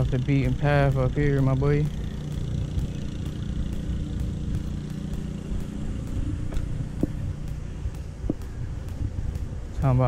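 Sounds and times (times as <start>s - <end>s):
bike tyre rumble on pavement: 0.0s - 10.0s
wind buffeting: 0.0s - 10.0s.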